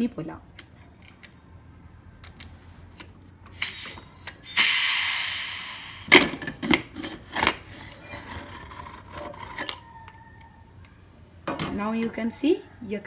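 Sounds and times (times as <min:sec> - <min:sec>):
pressure cooker steam hissing: 0:03.6 - 0:06.1.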